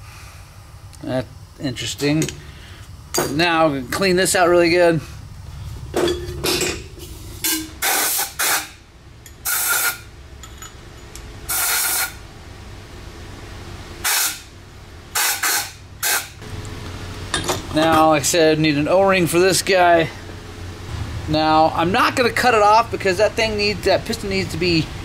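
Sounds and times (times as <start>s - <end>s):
compressed air blasts hissing: 6.9s - 8.8s, 9.4s - 10.1s, 11.5s - 12.2s, 14.0s - 14.5s, 15.1s - 16.4s.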